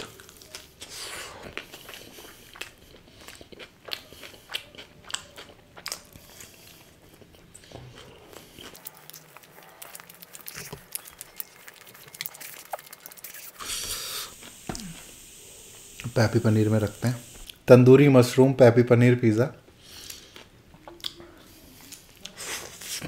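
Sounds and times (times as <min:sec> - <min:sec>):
chewing and wet mouth clicks: 0:00.1 - 0:13.6, 0:20.0 - 0:21.2.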